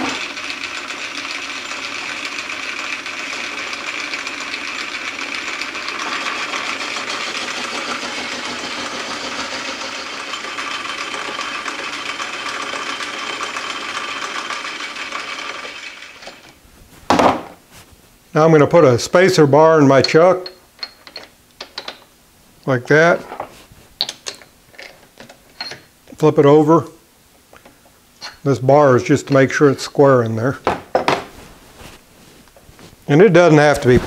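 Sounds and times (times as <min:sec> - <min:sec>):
metal lathe running: 0:00.0 - 0:16.4.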